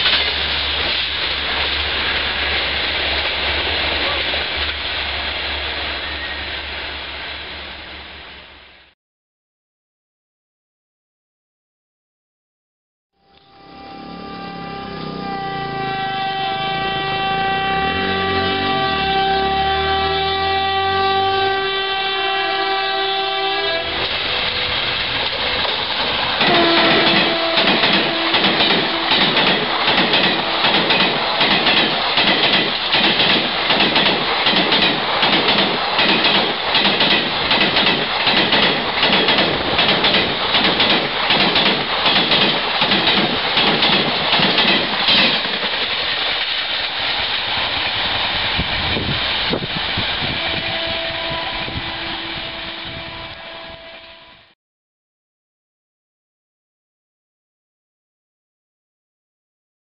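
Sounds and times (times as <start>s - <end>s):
train horn: 13.2s - 25.8s, 26.4s - 29.5s, 30.2s - 31.4s, 50.2s - 54.6s
train wheels clattering: 24.0s - 49.5s.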